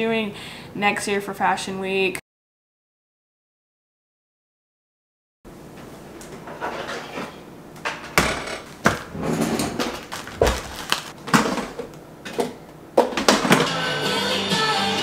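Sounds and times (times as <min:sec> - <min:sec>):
kitchen knocks and clatters: 0:06.3 - 0:13.7.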